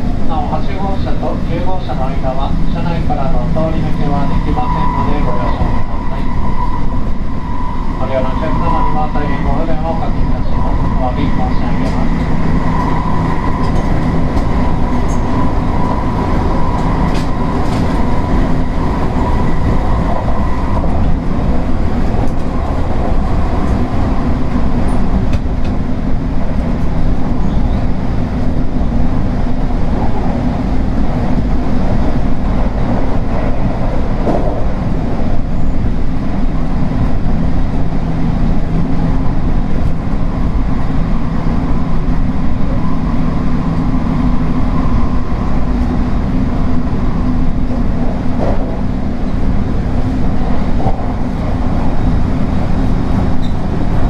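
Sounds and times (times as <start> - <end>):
high whine: 0.0 - 37.1
electric train running: 0.0 - 54.0.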